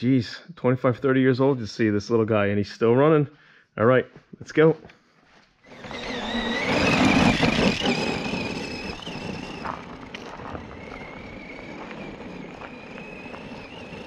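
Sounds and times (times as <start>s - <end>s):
toy truck motor whining: 5.6s - 14.0s
tyres crunching on gravel: 5.7s - 14.0s.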